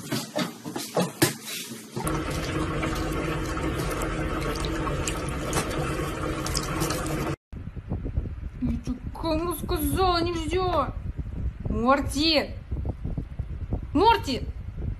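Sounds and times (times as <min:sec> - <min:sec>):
tap water running into sink: 0:02.0 - 0:07.4.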